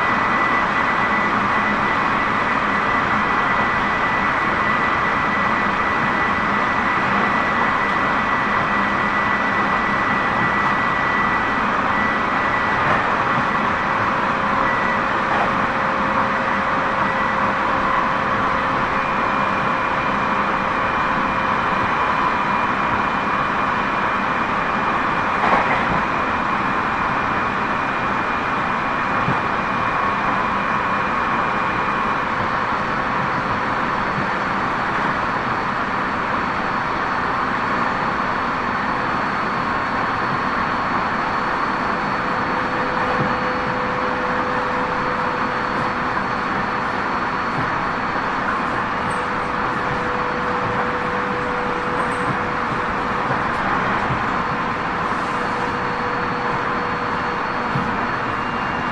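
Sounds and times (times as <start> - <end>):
train rolling noise: 0.0 - 58.9.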